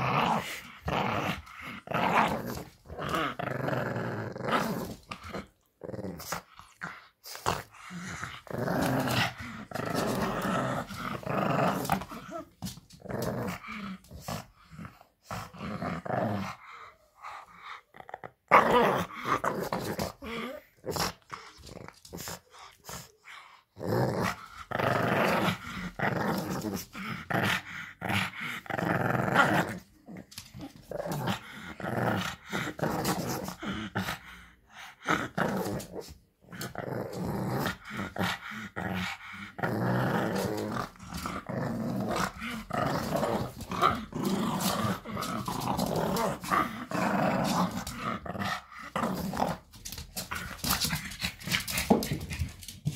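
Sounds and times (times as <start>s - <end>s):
puppy growling: 0.0s - 52.9s.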